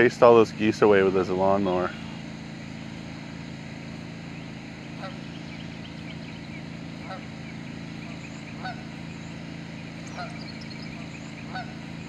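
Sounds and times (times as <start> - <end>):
low drone: 0.0 - 12.0
geese honking: 4.8 - 12.0.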